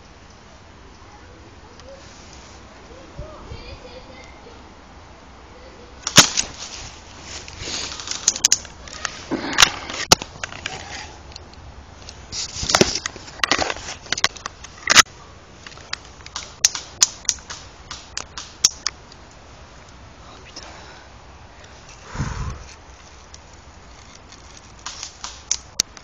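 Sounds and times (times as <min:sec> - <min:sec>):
sharp twig cracks: 0:06.0 - 0:06.8, 0:07.4 - 0:19.4, 0:22.7 - 0:26.0.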